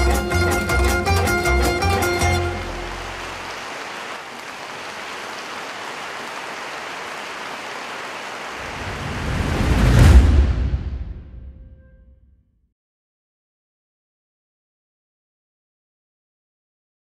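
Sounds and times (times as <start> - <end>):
audience applauding: 0.8 - 9.7
deep rising swell: 8.6 - 11.9.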